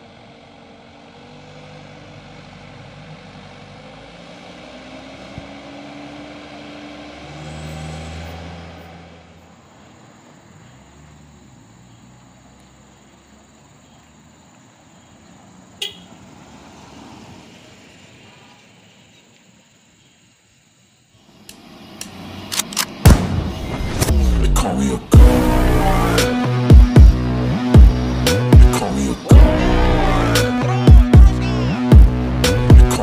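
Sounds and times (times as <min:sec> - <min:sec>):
diesel truck engine climbing: 0:00.0 - 0:18.9, 0:21.2 - 0:33.0
sharp click: 0:21.4 - 0:23.2.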